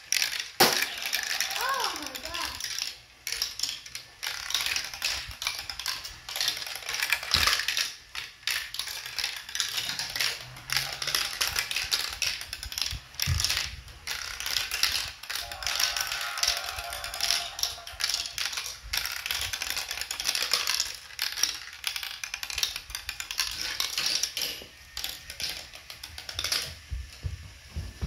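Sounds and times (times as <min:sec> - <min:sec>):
marbles clicking and rattling: 0:00.0 - 0:27.0.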